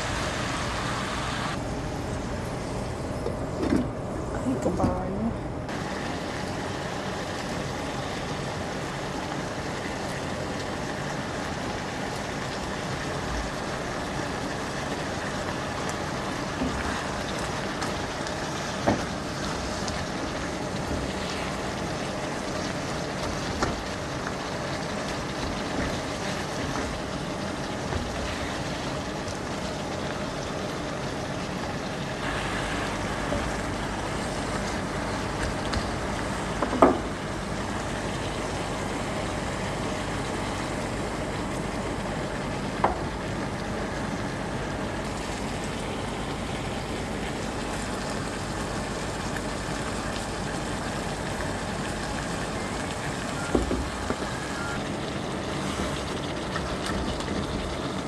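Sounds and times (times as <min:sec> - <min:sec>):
food sizzling in a pan: 0:00.0 - 0:01.6, 0:05.7 - 0:58.0.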